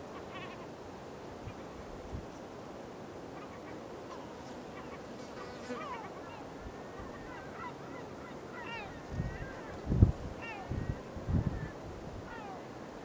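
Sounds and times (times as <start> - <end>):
steady outdoor hiss: 0.0 - 13.0
distant gulls calling: 5.8 - 9.8, 10.4 - 12.8.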